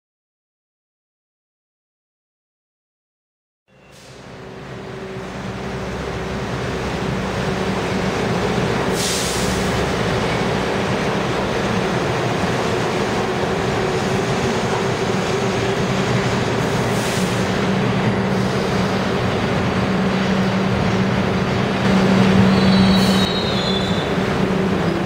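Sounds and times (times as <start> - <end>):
subway train equipment humming: 3.7 - 25.0
air hiss: 8.9 - 9.7.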